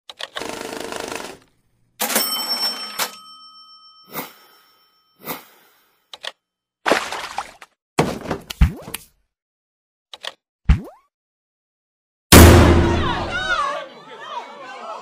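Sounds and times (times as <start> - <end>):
bright bell-like ring: 2.2 - 5.3.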